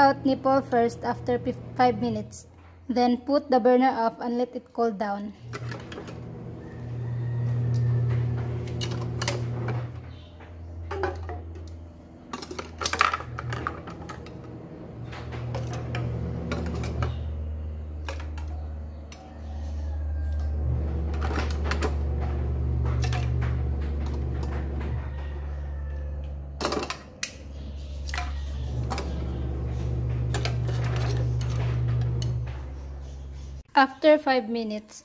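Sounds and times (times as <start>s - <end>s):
plastic parts rattling in boiling pot: 5.5s - 10.0s, 10.9s - 17.3s, 18.0s - 18.8s, 20.2s - 25.8s, 26.6s - 27.4s, 28.1s - 32.5s
low steady rumble: 5.6s - 33.7s.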